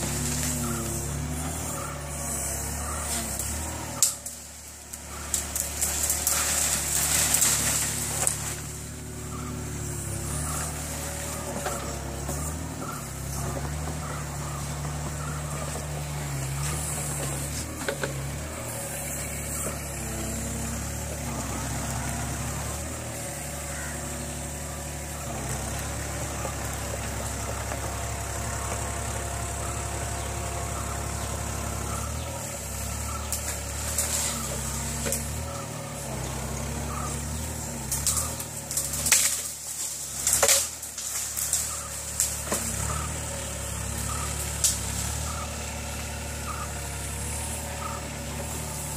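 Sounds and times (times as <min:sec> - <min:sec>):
branches cracking and snapping: 0:00.0 - 0:48.9
excavator diesel engine running: 0:00.0 - 0:48.9.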